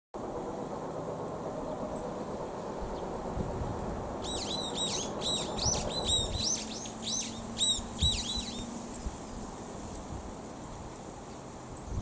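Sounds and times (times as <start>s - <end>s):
bird singing fast notes: 4.2s - 8.7s.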